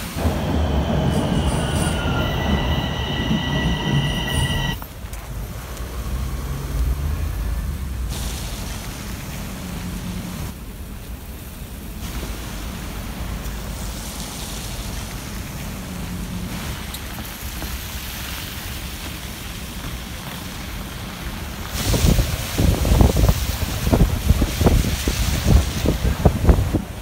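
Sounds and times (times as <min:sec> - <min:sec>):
city traffic: 0:00.0 - 0:27.0
wind buffeting microphone: 0:21.8 - 0:27.0.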